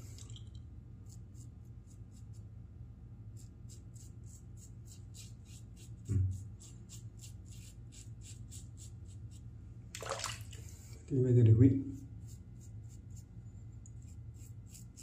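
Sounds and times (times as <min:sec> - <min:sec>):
razor scraping stubble: 0:03.4 - 0:09.4, 0:11.9 - 0:13.3, 0:13.9 - 0:15.0.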